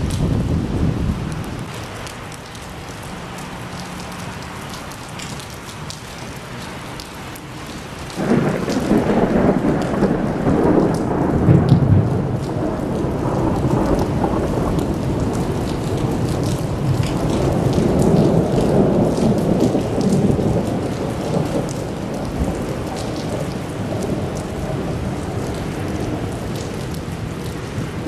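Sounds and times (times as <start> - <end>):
thunder rumbling: 0.0 - 1.8, 8.1 - 28.0
steady rain falling: 0.0 - 28.0.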